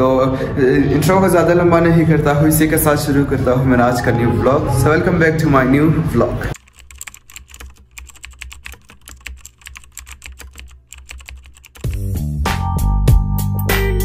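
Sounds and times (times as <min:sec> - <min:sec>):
fast keyboard clicks: 0:06.6 - 0:12.1
loud music with deep bass: 0:11.9 - 0:14.0.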